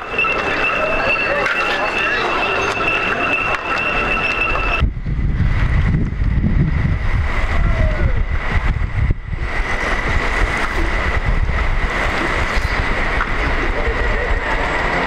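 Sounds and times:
wind rumble on microphone: 4.8 - 15.0.

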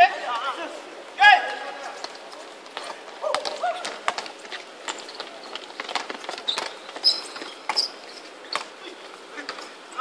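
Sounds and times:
players' footfalls: 1.4 - 10.0
sneaker squeaks: 2.8 - 9.8.

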